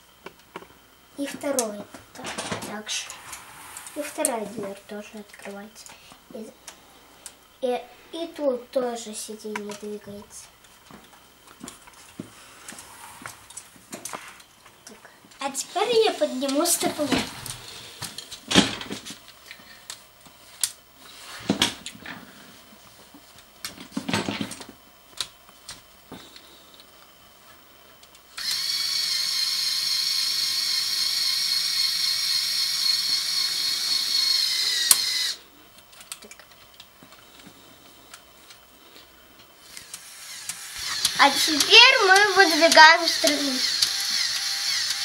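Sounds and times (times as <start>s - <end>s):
electric motor and gears whining: 15.4s - 19.5s, 28.0s - 45.0s.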